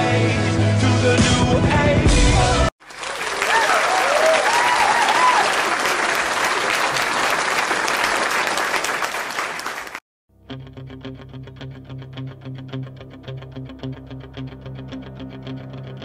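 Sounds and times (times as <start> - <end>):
crowd applauding: 2.8 - 10.0
crowd cheering: 2.8 - 10.0.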